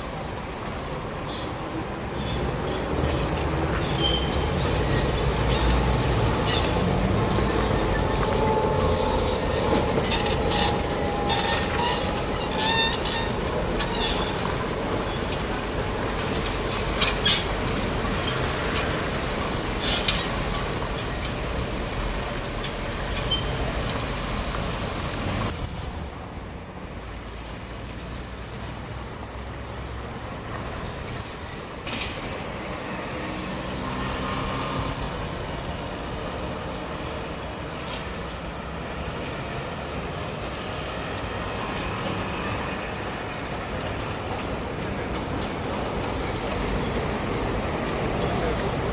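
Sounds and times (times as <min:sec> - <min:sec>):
steady road traffic: 0:00.0 - 0:48.9
trolleybus passing: 0:00.0 - 0:48.9
trolleybus knocks and clanks: 0:02.5 - 0:25.7, 0:30.3 - 0:48.9.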